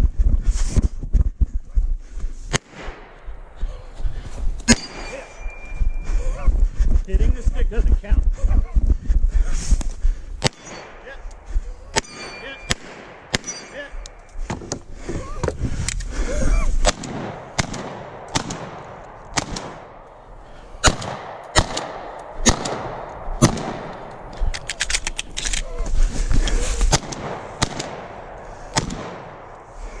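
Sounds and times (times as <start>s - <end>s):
gunshots: 2.5s - 3.3s, 4.6s - 5.5s, 10.4s - 14.6s, 16.8s - 20.2s, 20.8s - 25.6s, 26.7s - 29.9s.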